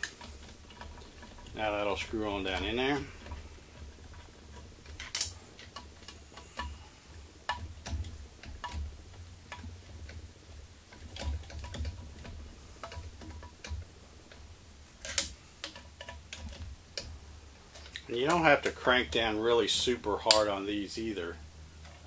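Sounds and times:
metallic clicks of screws turning: 0.0 - 6.8, 10.9 - 17.1
low steady hum: 0.0 - 22.0.

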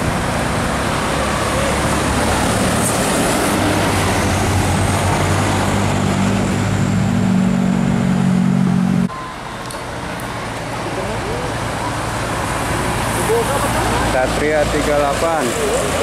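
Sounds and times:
bus diesel engine droning: 0.0 - 16.0
road noise: 0.0 - 16.0.

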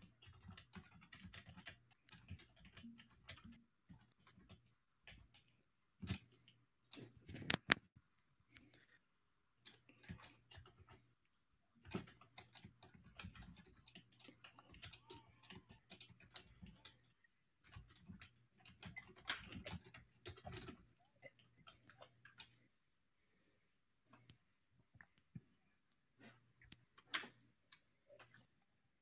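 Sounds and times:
small clicks and taps: 0.0 - 8.8.

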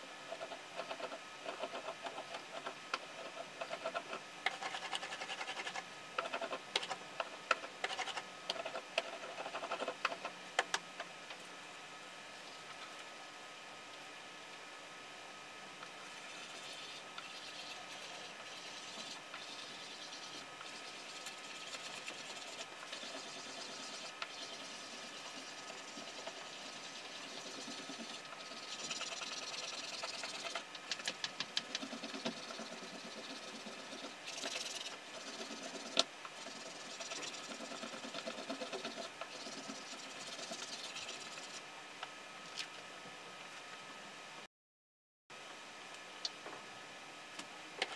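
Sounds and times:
paper rubbing on woodblock: 0.3 - 6.9, 7.5 - 10.3, 16.3 - 41.6.

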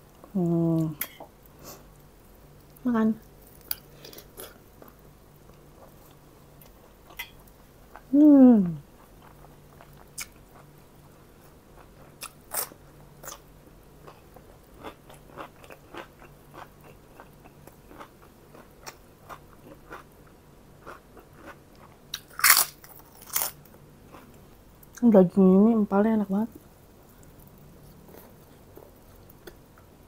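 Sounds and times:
person chewing crunchy food: 11.4 - 24.6, 26.6 - 29.9.

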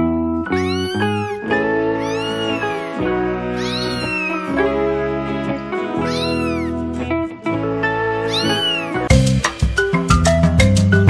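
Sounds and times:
background music: 0.0 - 11.0
kitten meowing: 0.5 - 5.2, 6.0 - 6.8, 8.2 - 9.1.

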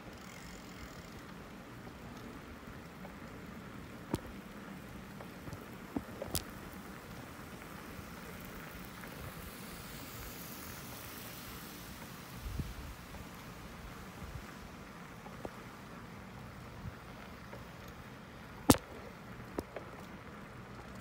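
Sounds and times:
bicycle tyres rolling on concrete: 0.0 - 21.0.

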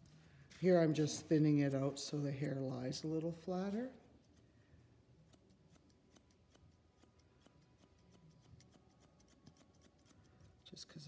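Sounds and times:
shears snipping hair: 5.2 - 10.7.

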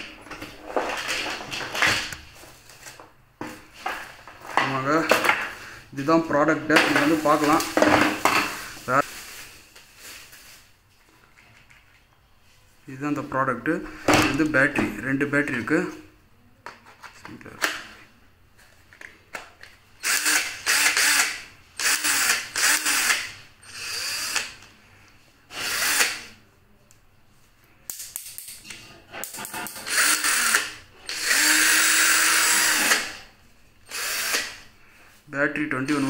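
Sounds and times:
cordless drill motor bursts: 20.0 - 24.6, 25.5 - 26.3, 29.9 - 33.2, 33.8 - 34.6.

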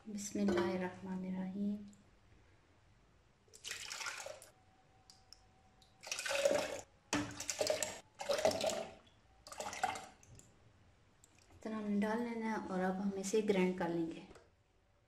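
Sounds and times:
liquid pouring into blender jar: 3.6 - 4.5, 6.0 - 10.2.

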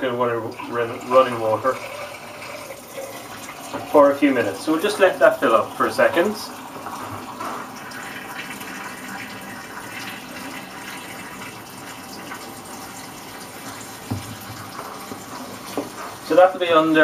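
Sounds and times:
tap water running into tank: 0.0 - 17.0
brief knock: 14.1 - 14.4.

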